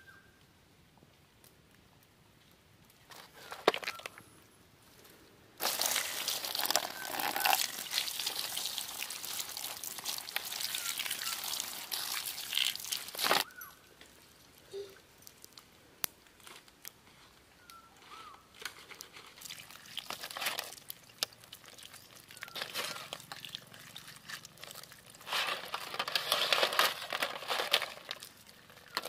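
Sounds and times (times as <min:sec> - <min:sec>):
rubbing and rustling: 0:21.8 - 0:29.0.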